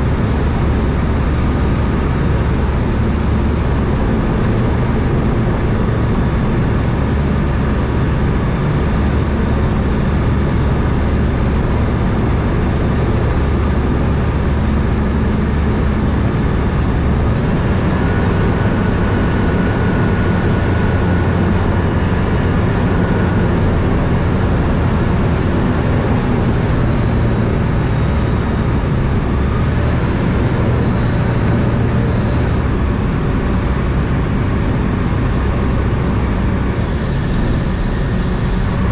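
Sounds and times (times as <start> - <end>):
aircraft engine and propeller droning: 0.0 - 38.9.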